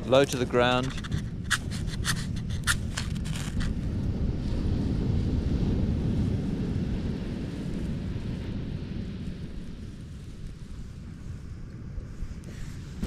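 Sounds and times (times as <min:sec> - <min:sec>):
steady low rumble: 0:00.0 - 0:13.0
dry grass crackling: 0:00.1 - 0:03.9.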